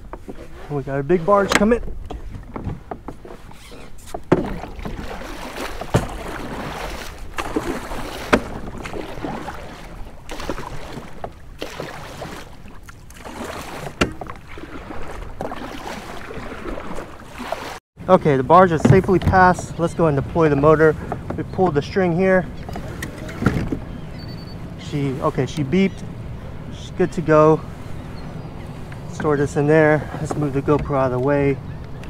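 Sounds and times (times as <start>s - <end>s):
water lapping against hull: 0.0s - 32.0s
sharp knocks: 5.8s - 6.4s
wind on microphone: 22.4s - 32.0s.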